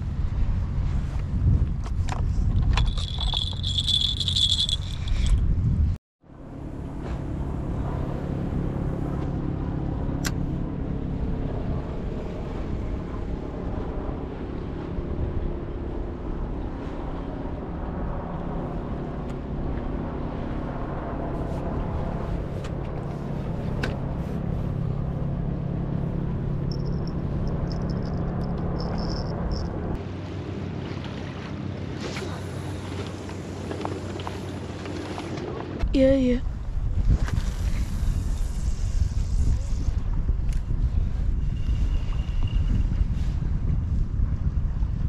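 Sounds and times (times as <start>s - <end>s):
low outdoor hum: 0.0s - 45.0s
stroller wheels rattling on bricks: 2.6s - 5.3s
high steady squeal: 26.6s - 29.7s, 41.4s - 42.9s.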